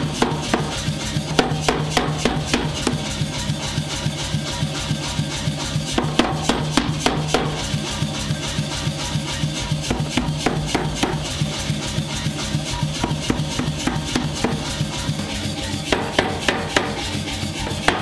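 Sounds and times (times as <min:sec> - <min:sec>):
power hammer striking hot steel: 0:00.0 - 0:03.6, 0:05.9 - 0:08.0, 0:15.9 - 0:18.0.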